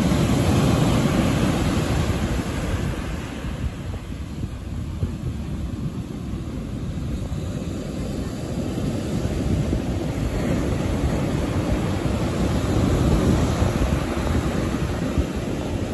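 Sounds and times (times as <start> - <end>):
surf breaking on beach: 0.0 - 15.9.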